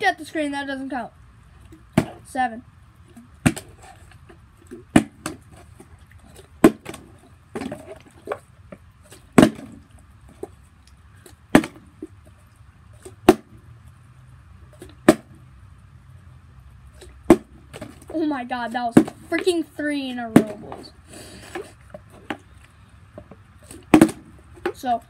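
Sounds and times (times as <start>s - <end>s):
plastic bottles thudding on concrete: 1.7s - 2.3s, 3.4s - 3.9s, 4.7s - 5.6s, 6.3s - 8.4s, 9.1s - 9.8s, 11.5s - 12.0s, 13.1s - 13.5s, 14.8s - 15.3s, 17.2s - 18.2s, 18.9s - 19.6s, 20.2s - 20.8s, 23.1s - 24.9s.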